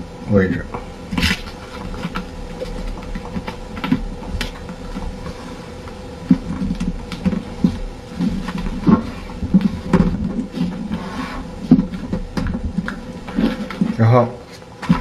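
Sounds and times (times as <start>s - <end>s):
faint steady hum: 0.0s - 15.0s
paper folding and rustling: 6.3s - 15.0s.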